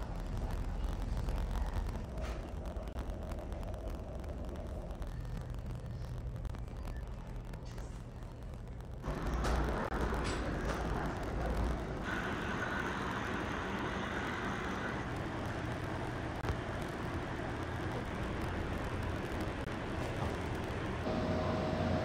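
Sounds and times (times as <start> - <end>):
machinery and ventilation hum: 0.0 - 22.0
faint high whine: 21.0 - 22.0.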